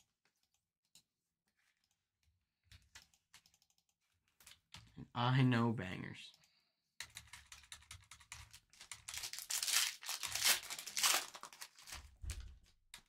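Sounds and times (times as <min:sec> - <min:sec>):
wrapper crinkling and tearing: 0:08.8 - 0:12.3.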